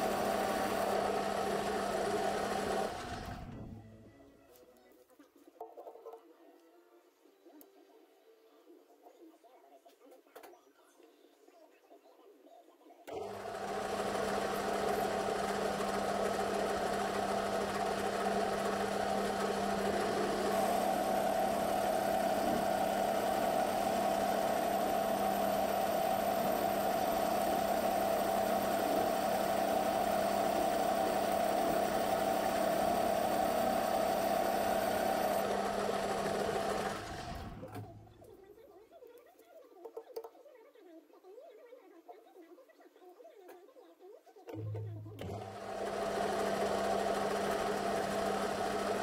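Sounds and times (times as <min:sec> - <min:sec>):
metal lathe humming: 0:00.0 - 0:03.8, 0:13.1 - 0:38.0.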